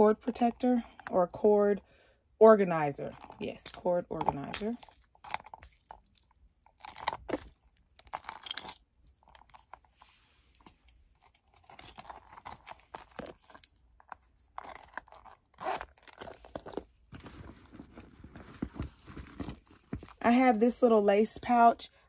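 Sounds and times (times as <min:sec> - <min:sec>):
pouches rustling: 0:09.1 - 0:21.6.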